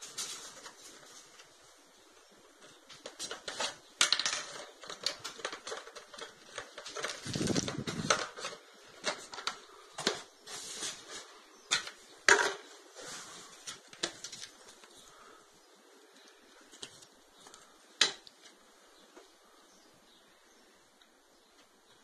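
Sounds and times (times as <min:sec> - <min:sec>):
packaging rustling: 0:03.0 - 0:12.0, 0:12.9 - 0:15.3.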